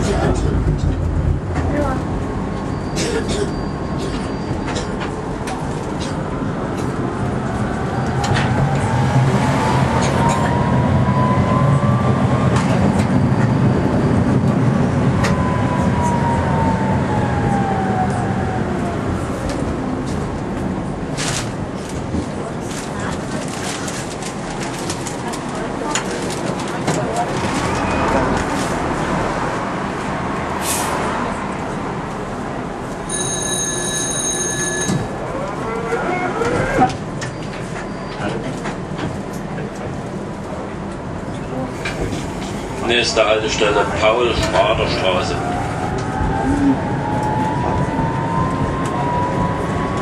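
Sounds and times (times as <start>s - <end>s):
tram motor hum: 0.0s - 50.0s
tram motor whine: 0.2s - 21.1s
tram door warning bell ringing: 33.0s - 37.6s.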